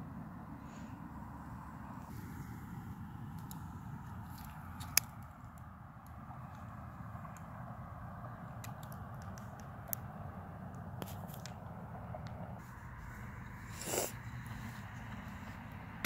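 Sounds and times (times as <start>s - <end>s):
microphone rubbing against clothing: 12.6s - 15.0s.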